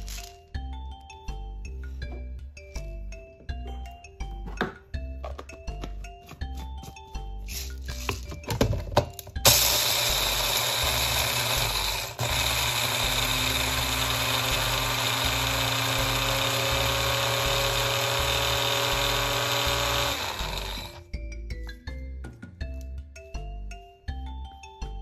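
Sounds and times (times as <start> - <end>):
electric blender grinding pellets: 9.4 - 21.1.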